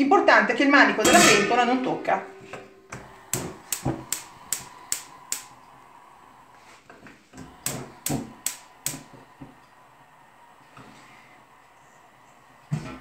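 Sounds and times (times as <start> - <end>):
gas hob igniter clicking: 3.0 - 5.8, 7.0 - 9.8.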